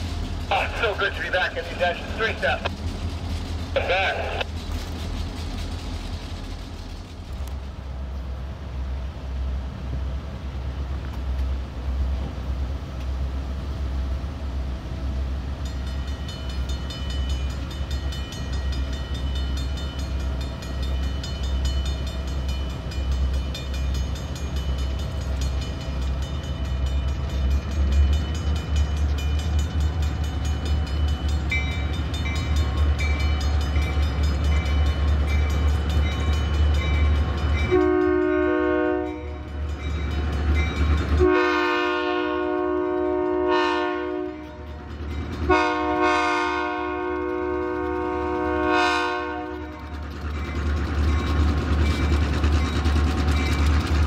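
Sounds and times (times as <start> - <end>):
crossing warning bells ringing: 0.0 - 4.5, 15.4 - 54.0
diesel locomotives rumbling: 0.0 - 54.0.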